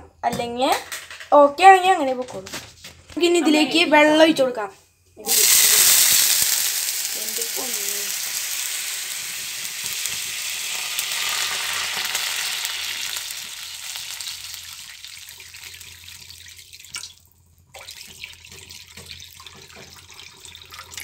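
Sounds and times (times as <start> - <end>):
water sizzling in hot pan: 5.2 - 17.2
water pouring and splashing: 5.3 - 21.0.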